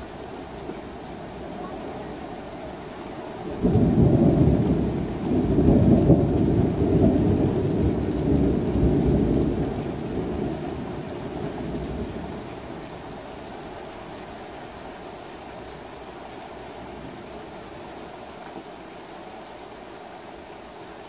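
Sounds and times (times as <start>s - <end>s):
steady rain: 0.0s - 21.0s
thunder rumbling: 1.1s - 13.3s.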